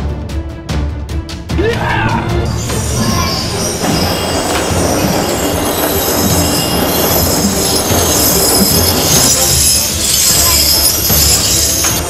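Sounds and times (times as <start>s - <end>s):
chains dragged on stone street: 2.3s - 12.0s.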